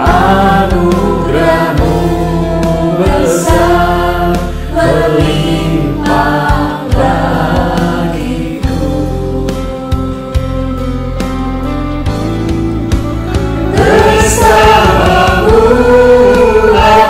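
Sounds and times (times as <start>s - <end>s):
mixed choir singing: 0.0s - 9.1s, 13.6s - 17.0s
instrumental accompaniment: 0.0s - 17.0s.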